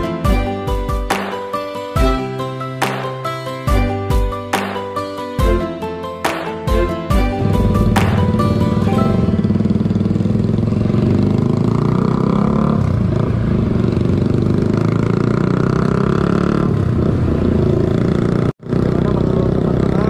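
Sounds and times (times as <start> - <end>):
higher engine note of vehicle: 7.3 - 20.0
motorcycle engine rumble: 7.4 - 20.0
street traffic noise: 7.4 - 20.0.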